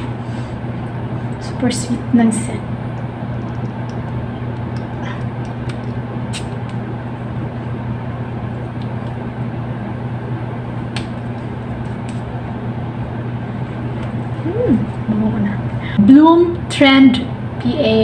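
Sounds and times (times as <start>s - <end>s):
low mechanical hum: 0.0s - 18.0s.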